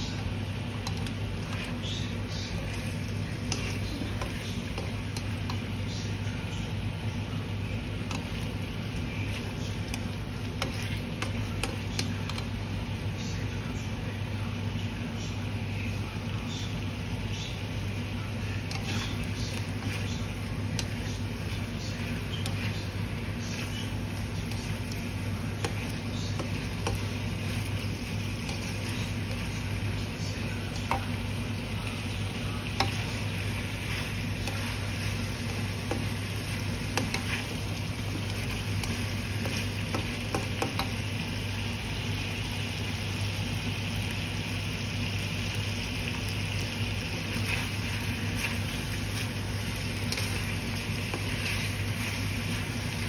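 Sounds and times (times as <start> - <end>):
food sizzling in a pan: 0.0 - 53.0
steady low hum: 0.0 - 53.0
spatula scraping and tapping pan: 36.9 - 37.6.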